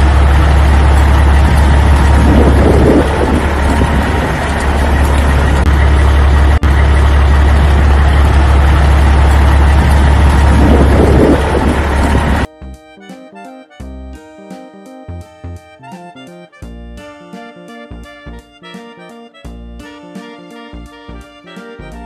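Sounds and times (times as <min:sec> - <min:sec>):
vehicle engine running loudly: 0:00.0 - 0:12.5.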